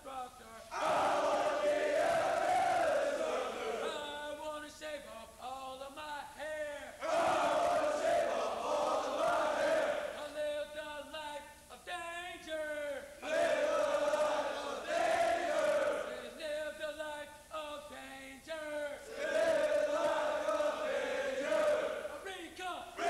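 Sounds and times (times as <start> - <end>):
man calling out sing-song phrases: 3.8 - 7.0, 10.1 - 13.2, 16.1 - 19.1, 22.2 - 23.0.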